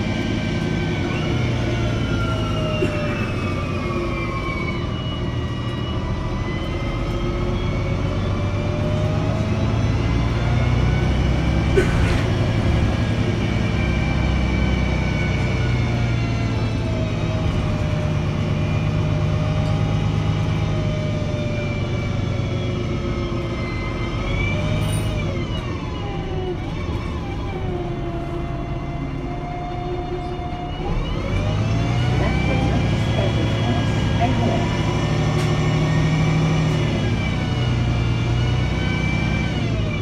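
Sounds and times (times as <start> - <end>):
bus diesel engine drone: 0.0 - 40.0.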